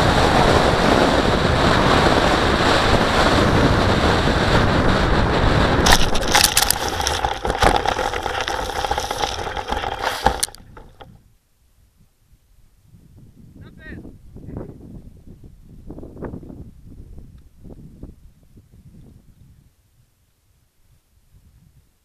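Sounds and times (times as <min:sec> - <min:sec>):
glider skidding through grass: 0:05.6 - 0:11.1.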